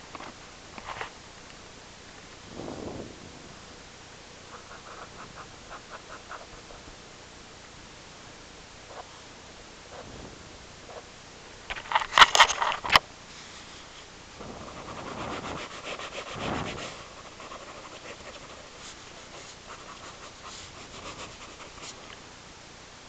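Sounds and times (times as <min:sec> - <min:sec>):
marker pen scratching on paper: 0:04.5 - 0:06.9, 0:14.6 - 0:22.2.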